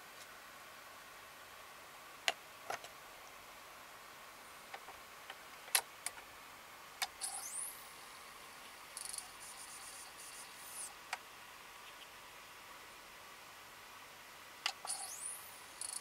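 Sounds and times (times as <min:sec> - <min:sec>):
disc spinning up whine: 0:07.1 - 0:08.2, 0:09.0 - 0:10.9, 0:14.7 - 0:16.0
cd clicking onto spindle: 0:14.6 - 0:15.2.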